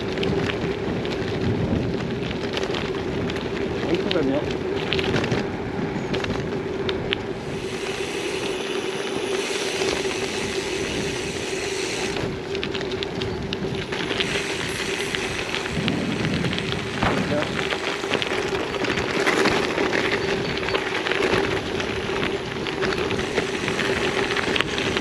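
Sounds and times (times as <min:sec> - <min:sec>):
small clicks and crunches: 0:00.0 - 0:05.5
tyres rolling over rough surface: 0:00.0 - 0:25.0
wind rushing over microphone: 0:00.0 - 0:25.0.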